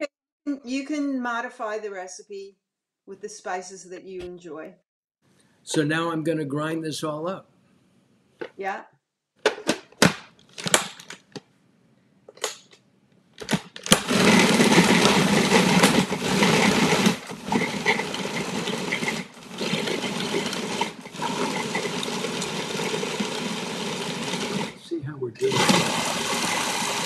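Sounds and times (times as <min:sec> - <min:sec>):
food processor clicks: 0:13.4 - 0:24.8, 0:25.4 - 0:27.0
food processor motor grinding: 0:13.4 - 0:27.0.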